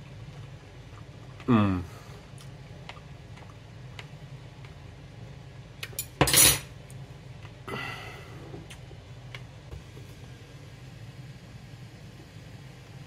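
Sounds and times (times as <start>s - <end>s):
low steady hum: 0.0s - 13.0s
kitchenware clattering: 6.0s - 6.7s.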